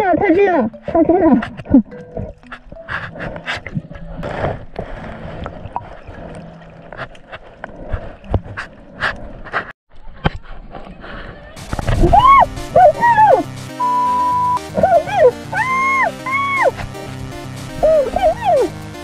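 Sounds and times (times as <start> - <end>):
water sloshing and gurgling: 0.0 - 13.5
loud background music: 11.8 - 19.0.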